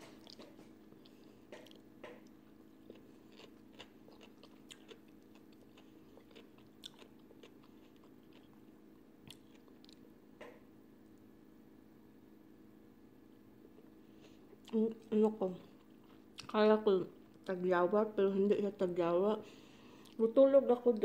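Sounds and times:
person chewing crispy food: 0:00.1 - 0:10.1, 0:13.6 - 0:16.6.

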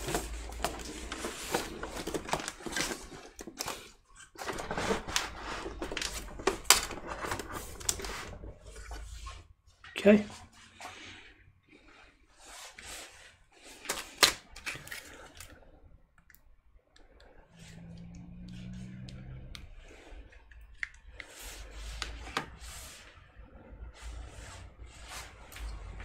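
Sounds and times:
handling rustling: 0:00.0 - 0:09.6.

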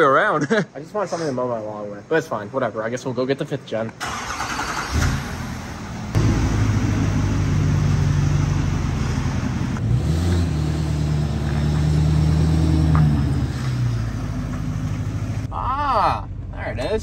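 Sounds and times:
truck engine droning: 0:04.0 - 0:17.0.

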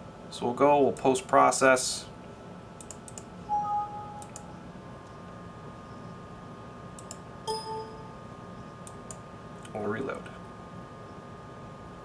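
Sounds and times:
computer mouse clicks: 0:02.8 - 0:03.3, 0:04.2 - 0:04.5, 0:07.0 - 0:07.2, 0:08.8 - 0:09.8
electronic tone: 0:03.5 - 0:04.4, 0:07.5 - 0:08.3.

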